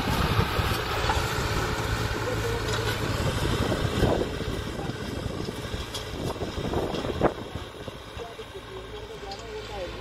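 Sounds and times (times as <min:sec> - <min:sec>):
tractor engine droning: 0:00.0 - 0:10.0.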